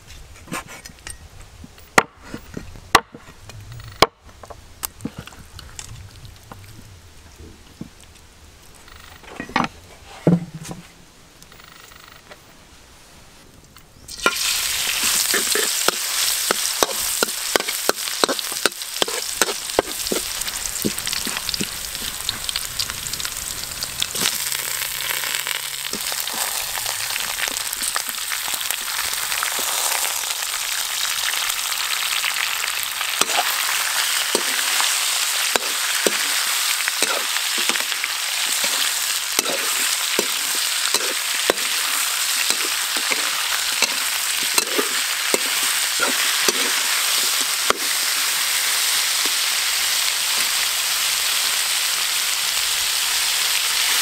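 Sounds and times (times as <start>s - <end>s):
oil sizzling in a wok: 14.1s - 54.0s
metal spatula scraping wok: 14.2s - 22.6s, 33.2s - 48.4s.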